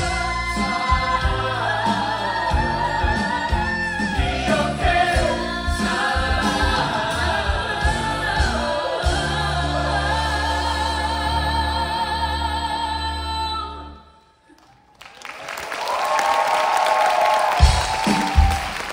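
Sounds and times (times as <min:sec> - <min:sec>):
cast singing with band: 0:00.0 - 0:13.4.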